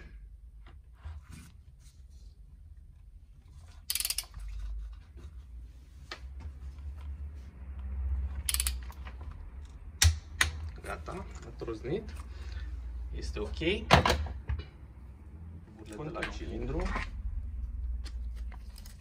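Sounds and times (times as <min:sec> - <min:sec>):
socket ratchet clicking: 0:03.9 - 0:04.3, 0:08.4 - 0:09.0.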